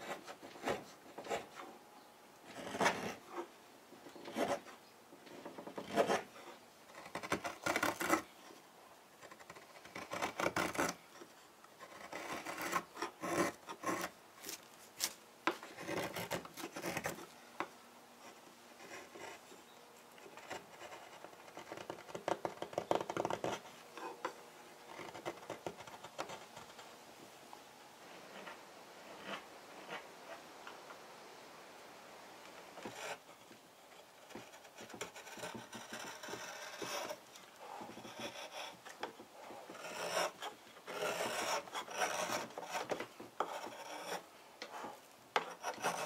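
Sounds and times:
blade scraping wood: 5.3s - 8.4s, 9.2s - 17.3s, 34.2s - 46.0s.

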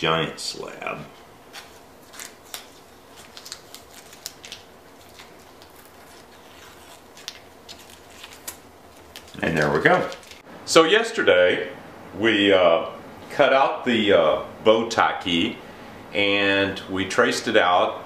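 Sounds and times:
masking tape peeling off wood: 1.5s - 10.4s.

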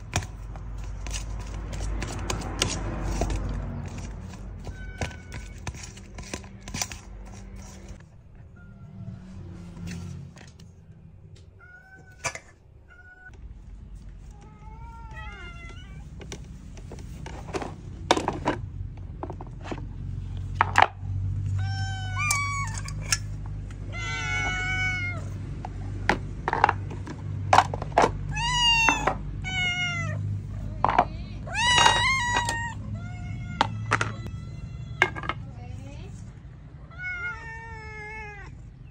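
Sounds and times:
cats meowing: 3.7s - 6.6s, 7.4s - 10.3s, 11.2s - 13.4s, 14.2s - 16.6s, 21.4s - 26.0s, 28.1s - 35.4s, 36.7s - 38.9s.

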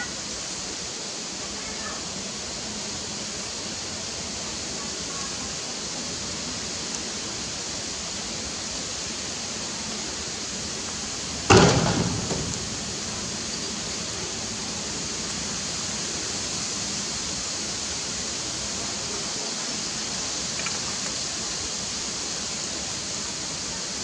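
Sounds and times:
steady outdoor hiss: 0.0s - 24.0s
sudden loud thump: 11.5s - 13.0s.

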